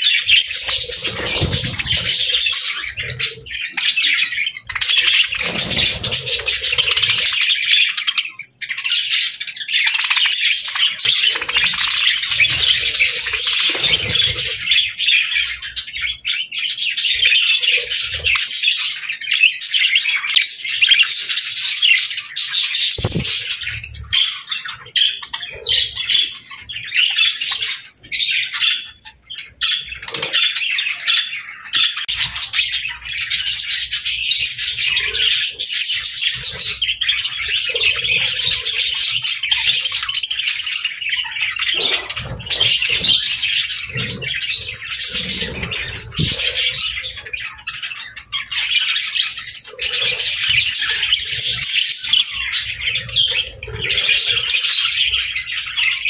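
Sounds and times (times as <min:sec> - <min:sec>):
budgerigars chattering: 0:00.0 - 0:56.0.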